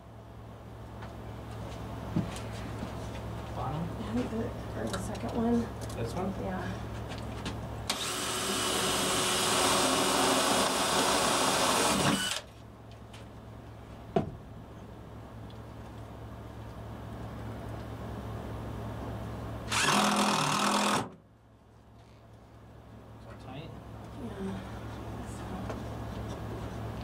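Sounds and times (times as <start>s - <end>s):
cordless drill driving fastener: 7.9s - 12.5s, 19.7s - 21.1s.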